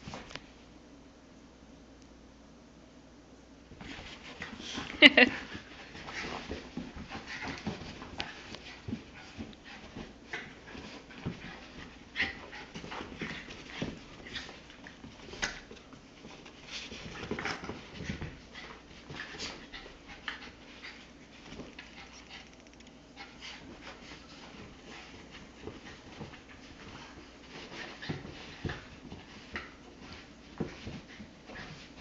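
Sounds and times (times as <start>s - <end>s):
dogs scuffling: 3.7s - 22.4s, 23.2s - 32.0s
dogs panting: 4.3s - 15.7s.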